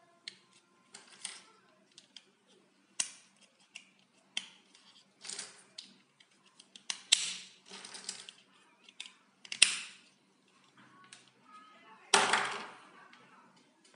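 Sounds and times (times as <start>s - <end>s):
plastic blocks snapping together: 3.0s - 4.6s, 6.6s - 7.6s, 8.2s - 10.0s.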